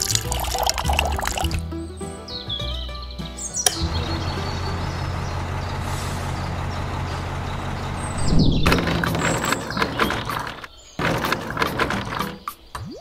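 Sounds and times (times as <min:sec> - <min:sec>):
toy mixer clattering and rattling: 0:00.0 - 0:01.6, 0:08.6 - 0:12.5.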